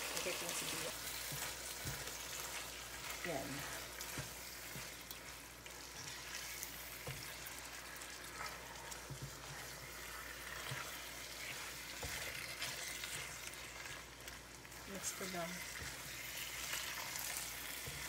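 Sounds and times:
meat and onions sizzling in pan: 0:00.0 - 0:18.0.

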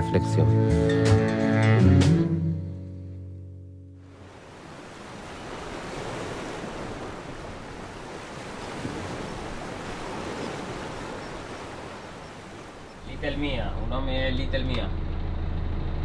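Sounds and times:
sea water rushing along hull: 0:04.0 - 0:14.2
wind: 0:04.0 - 0:16.0.

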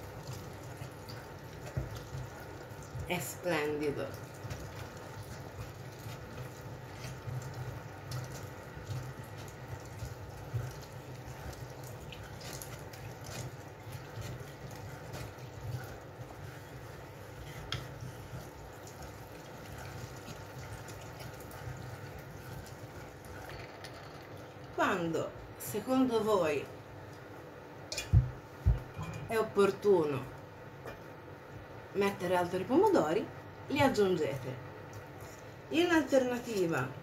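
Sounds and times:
food mill wet churning: 0:00.0 - 0:25.1.

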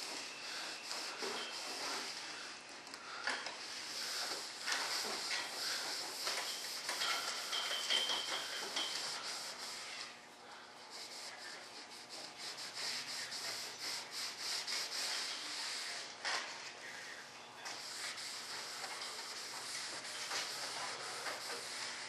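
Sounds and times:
cloth rag rubbing smooth surface: 0:00.0 - 0:02.3, 0:10.8 - 0:16.1, 0:17.8 - 0:22.0.

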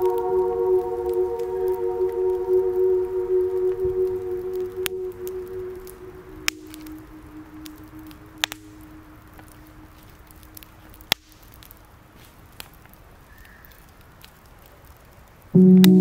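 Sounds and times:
wood fire crackling and popping: 0:04.0 - 0:16.0.

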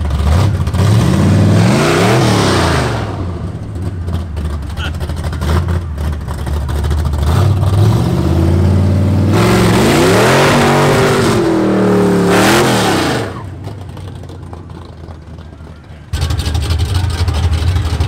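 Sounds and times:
car engine idling and revving: 0:00.0 - 0:18.0.

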